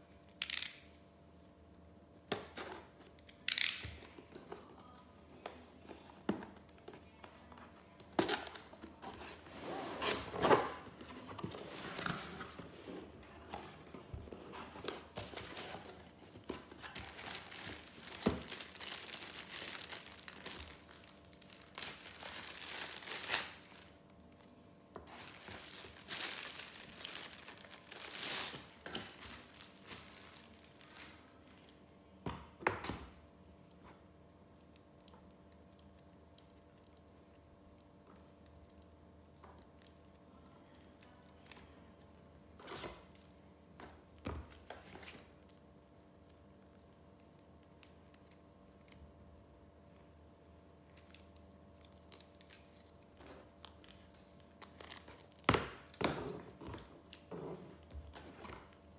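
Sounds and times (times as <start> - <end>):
packaging rustling and crinkling: 6.0 - 31.7.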